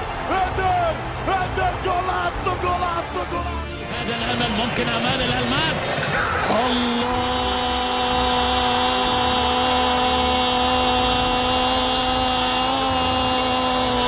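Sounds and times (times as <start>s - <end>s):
stadium crowd noise: 0.0s - 14.0s
commentator shouting: 0.1s - 14.0s.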